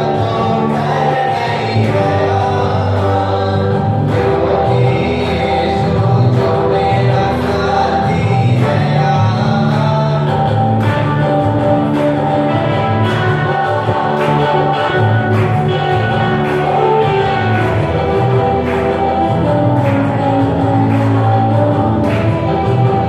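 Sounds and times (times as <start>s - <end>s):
band with guitar and beat: 0.0s - 23.0s
person singing: 0.0s - 23.0s.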